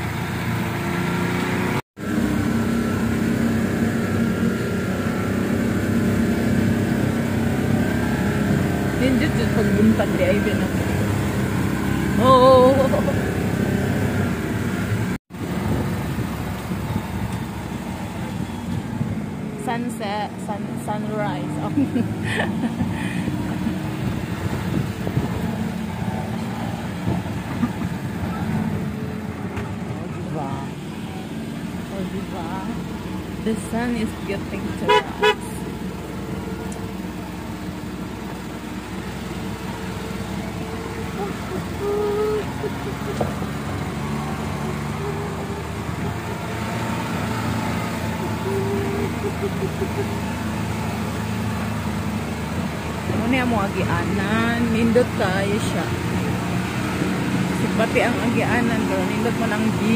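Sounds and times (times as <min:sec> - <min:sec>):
vehicle engine and road noise: 0:00.0 - 0:59.9
vehicle horn beeps: 0:34.8 - 0:35.5.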